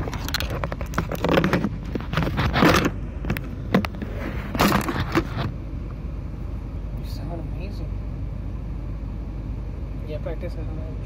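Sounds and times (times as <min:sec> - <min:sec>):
car cabin rumble: 0:00.0 - 0:08.7.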